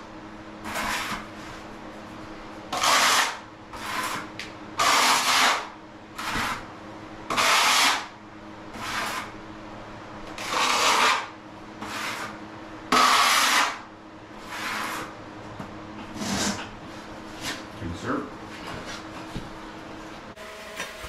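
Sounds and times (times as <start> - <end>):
trowel scraping mortar: 0.7 - 1.3, 2.7 - 4.2, 4.8 - 5.6, 6.2 - 6.6, 7.3 - 8.0, 8.8 - 9.3, 10.4 - 13.8, 14.4 - 15.1, 16.1 - 16.7.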